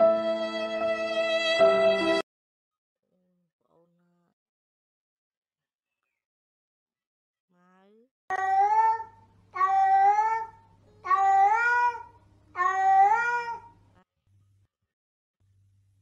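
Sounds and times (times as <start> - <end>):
cat meowing: 8.3 - 13.7.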